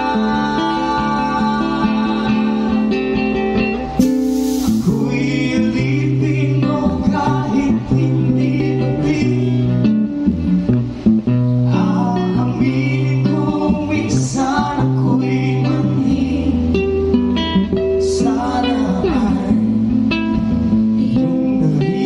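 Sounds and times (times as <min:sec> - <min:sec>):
acoustic guitar: 0:00.0 - 0:22.0
sustained bass notes: 0:03.9 - 0:22.0
person singing: 0:04.0 - 0:09.8.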